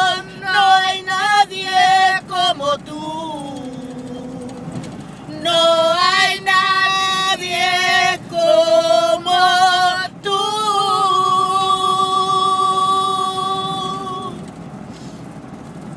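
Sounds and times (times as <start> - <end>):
women singing without words: 0.0 - 14.4
breaths: 14.9 - 15.3.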